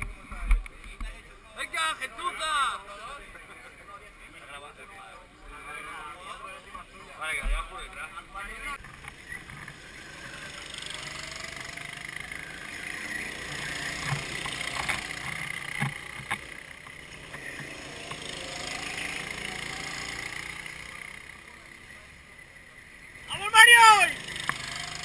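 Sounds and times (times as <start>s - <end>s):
go-kart engines buzzing: 0.0s - 25.0s.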